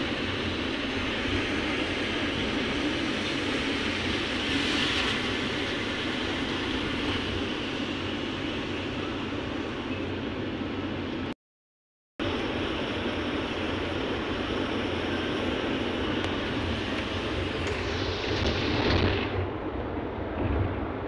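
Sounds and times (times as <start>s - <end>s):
bus engine and tyre noise: 0.0s - 11.4s, 12.2s - 21.0s.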